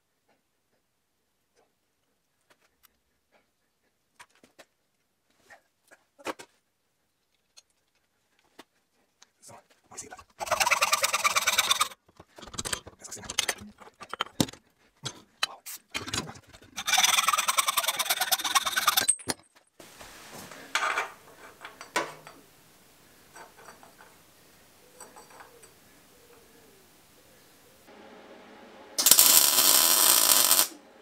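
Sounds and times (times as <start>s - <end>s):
metal pipe clicks and knocks: 20.8s - 22.4s
hacksaw cutting metal pipe: 29.0s - 30.7s.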